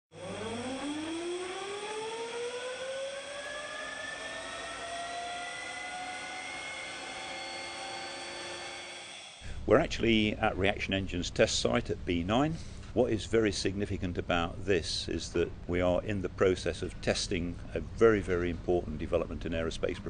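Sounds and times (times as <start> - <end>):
jet engine whine: 0.1 - 9.7.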